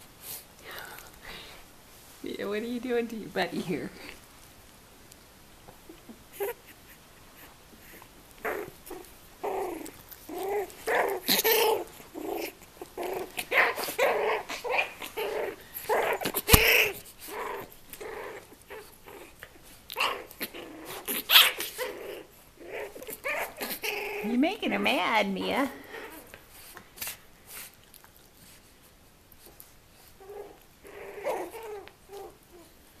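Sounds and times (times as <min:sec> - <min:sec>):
dogs growling and barking: 0:07.8 - 0:24.6, 0:30.2 - 0:32.6.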